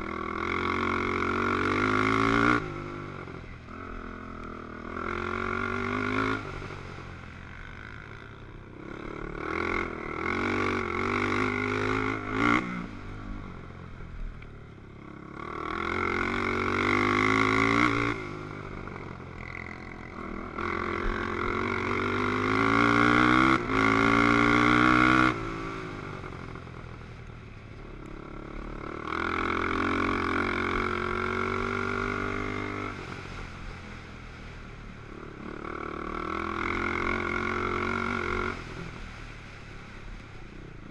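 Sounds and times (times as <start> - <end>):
quad engine revving: 0.0 - 3.1, 3.7 - 6.7, 8.8 - 13.0, 15.3 - 26.4, 28.2 - 33.4, 35.3 - 38.8.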